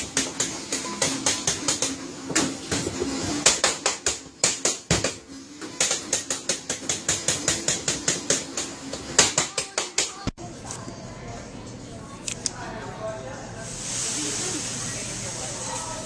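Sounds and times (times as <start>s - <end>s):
dough slapping on a steel table: 0.0s - 10.2s.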